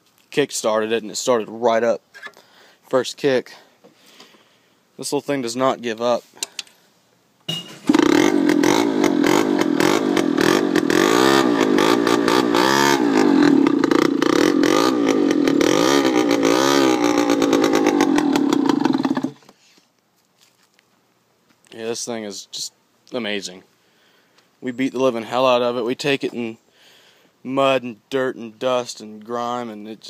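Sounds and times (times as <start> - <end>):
engine throttle blipping: 7.5 - 19.4
small engine kick-started: 7.5 - 19.4.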